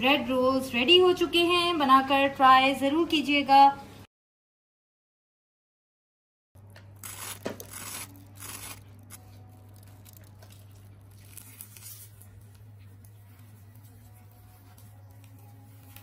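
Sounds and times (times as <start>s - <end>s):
fried bread crust crackling: 6.8s - 14.2s.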